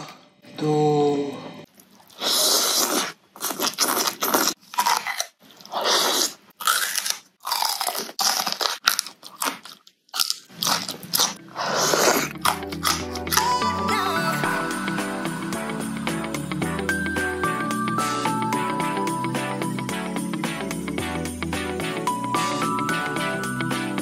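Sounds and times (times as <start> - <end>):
crunching raw vegetables: 1.8 - 14.1
intro music: 11.4 - 24.0.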